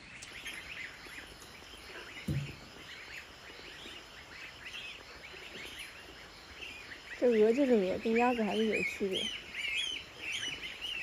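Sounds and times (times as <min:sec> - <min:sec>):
goslings peeping: 0:00.0 - 0:11.0
dull thump: 0:02.2 - 0:02.7.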